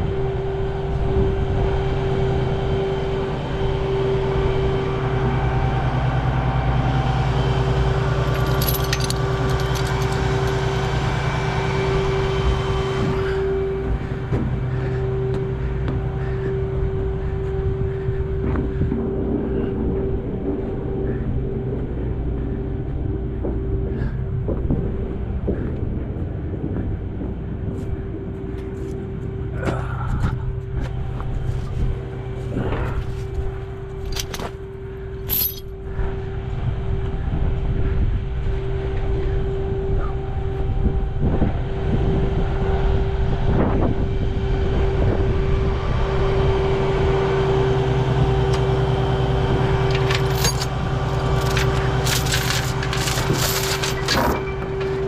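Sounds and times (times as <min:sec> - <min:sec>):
metallic clicks and rattles: 0:08.4 - 0:10.5, 0:49.9 - 0:54.9.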